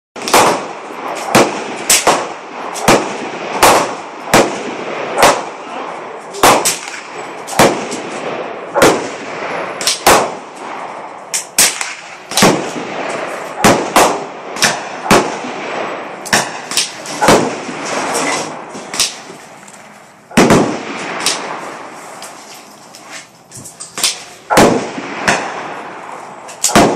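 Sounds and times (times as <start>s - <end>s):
gunshots echoing: 0.2s - 19.6s, 20.2s - 22.7s, 23.9s - 26.9s.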